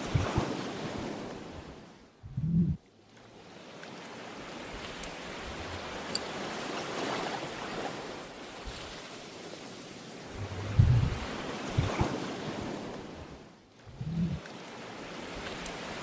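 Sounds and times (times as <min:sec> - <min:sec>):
sea surf washing in: 0:04.0 - 0:16.0.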